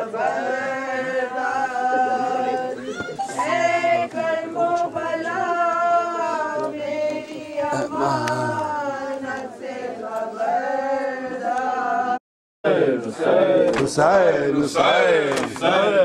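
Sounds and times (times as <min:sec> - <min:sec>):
men chanting a lament: 0:03.4 - 0:16.0.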